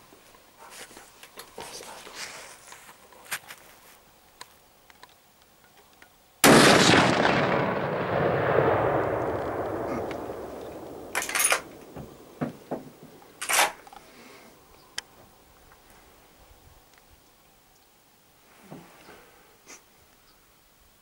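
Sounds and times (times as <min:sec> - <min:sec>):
loud gunshot with echo: 0:06.4 - 0:11.7.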